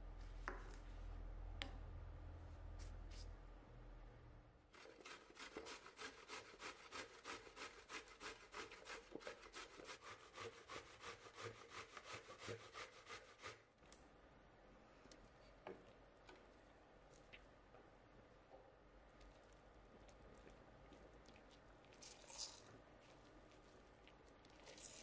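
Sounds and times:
zucchini rasping on grater: 4.8s - 13.6s.

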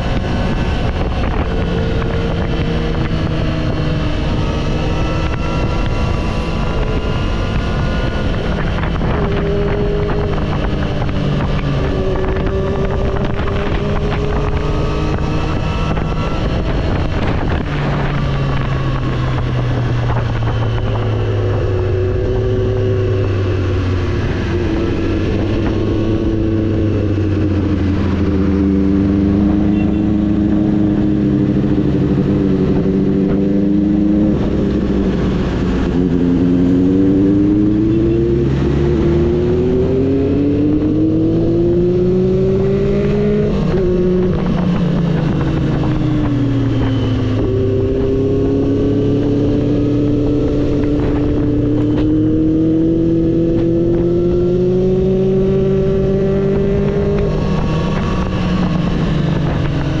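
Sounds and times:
motorcycle engine running: 0.0s - 60.0s.

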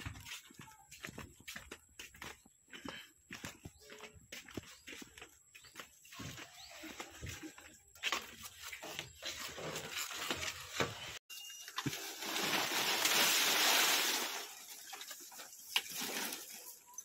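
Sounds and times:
dried palm fronds rustling: 11.7s - 16.8s.

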